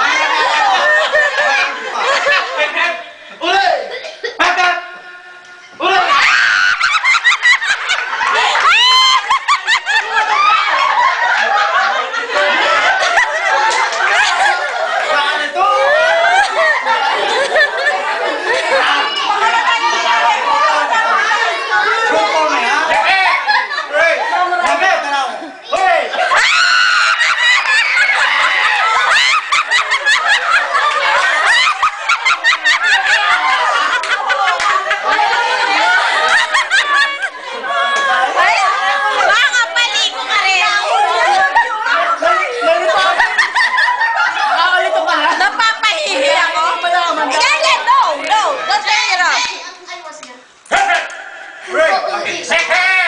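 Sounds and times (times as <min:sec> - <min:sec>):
group of adults laughing: 0:00.0 - 0:49.0, 0:50.7 - 0:53.0.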